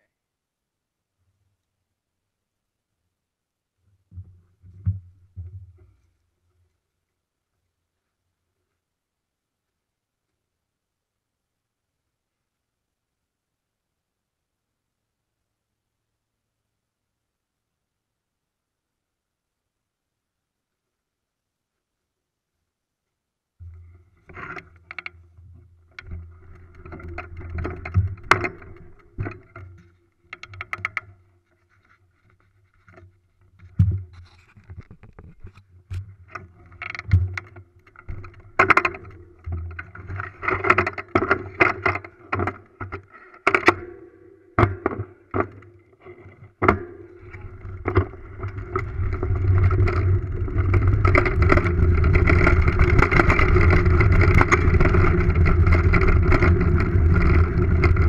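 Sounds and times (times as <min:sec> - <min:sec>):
bike rattling clicks and knocks: 0:25.9 - 0:31.2, 0:36.3 - 0:43.9, 0:46.6 - 0:58.0.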